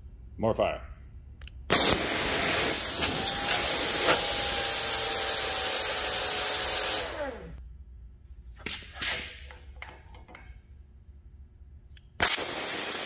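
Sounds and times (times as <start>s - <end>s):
plasma cutter hissing: 1.7s - 7.1s, 12.2s - 13.0s.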